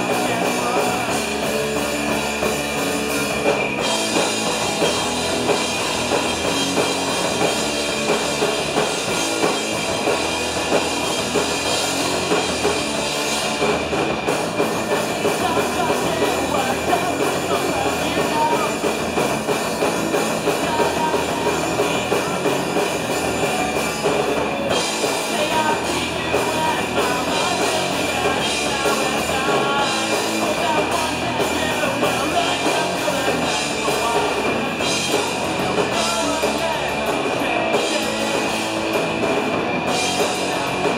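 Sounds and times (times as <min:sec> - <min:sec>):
person singing: 0:00.0 - 0:02.2, 0:14.6 - 0:19.1, 0:20.4 - 0:23.8, 0:25.0 - 0:38.9
drum kit: 0:00.0 - 0:40.9
electric guitars: 0:00.0 - 0:40.9.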